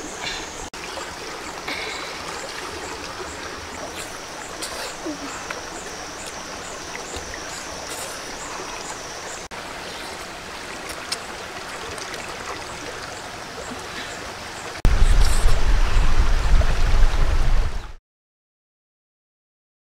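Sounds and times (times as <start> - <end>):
running water rushing: 0.0 - 18.0
heavy deep rumble: 14.9 - 18.0.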